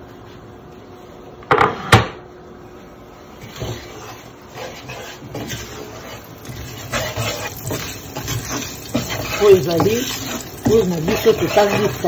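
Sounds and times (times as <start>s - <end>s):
wooden spatula scraping pan: 3.4s - 12.0s.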